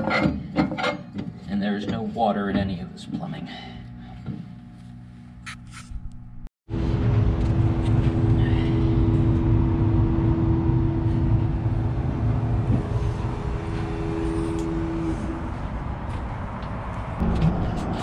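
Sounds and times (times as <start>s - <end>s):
droning hum: 0.0s - 18.0s
loud low rumble: 6.7s - 16.5s.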